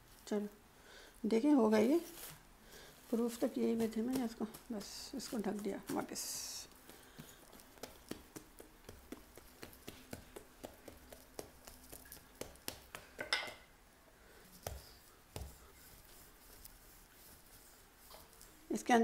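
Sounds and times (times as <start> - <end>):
hands patting dough: 3.0 - 13.7, 14.4 - 18.7
scuff on countertop: 14.6 - 16.7.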